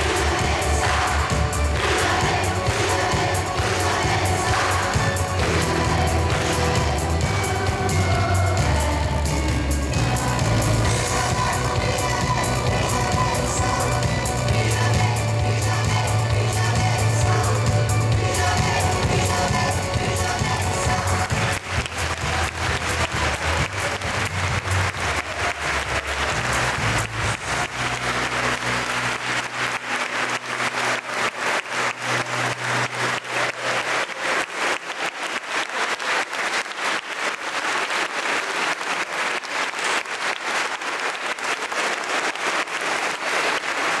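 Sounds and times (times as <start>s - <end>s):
audience applauding: 0.0s - 8.6s, 18.4s - 44.0s.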